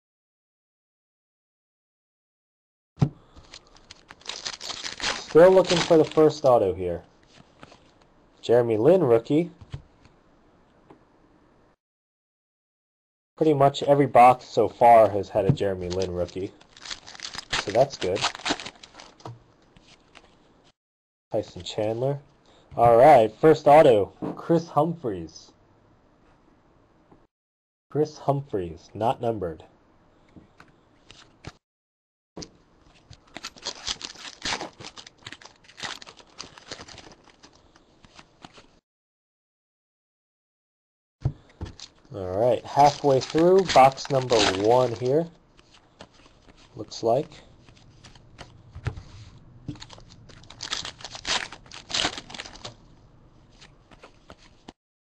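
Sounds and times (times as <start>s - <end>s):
cards being handled: 3.0s - 6.5s, 7.2s - 8.1s, 15.6s - 20.4s, 32.9s - 38.7s, 41.3s - 46.8s, 53.5s - 54.7s
foil pack tearing and crinkling: 3.4s - 6.5s, 15.8s - 19.2s, 33.2s - 38.3s, 42.7s - 46.2s, 49.7s - 52.8s.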